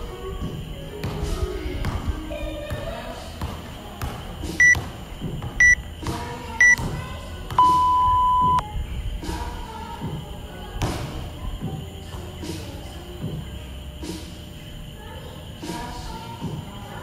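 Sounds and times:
long lower timer beep: 7.6s - 8.6s
short high timer beeps: 7.6s - 8.6s.

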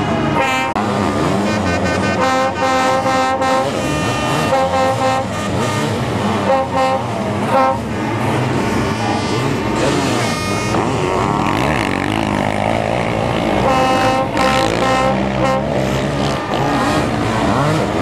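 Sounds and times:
racing engines revving hard: 0.0s - 18.0s.

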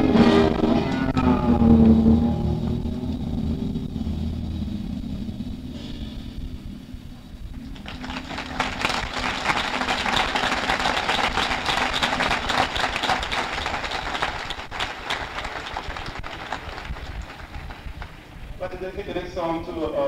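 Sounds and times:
steady low tone: 0.0s - 20.0s
audience applauding: 7.6s - 18.4s.

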